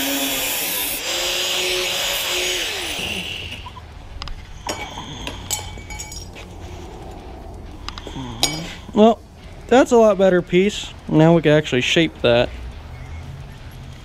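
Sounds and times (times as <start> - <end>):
angle grinder cutting metal: 0.0 - 3.7
light metallic clinks: 4.6 - 6.4, 8.0 - 9.0.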